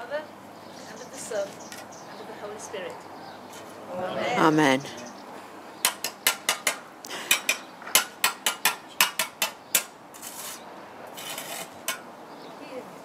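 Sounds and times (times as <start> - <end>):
block scraping on mortar: 7.3 - 12.0.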